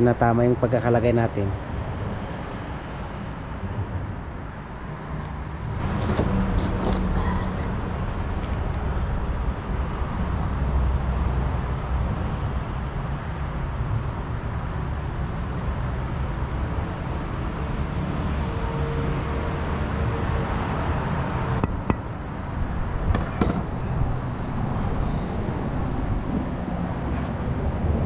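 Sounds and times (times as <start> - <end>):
sharp metallic knocks: 21.6 - 22.3, 23.0 - 24.0.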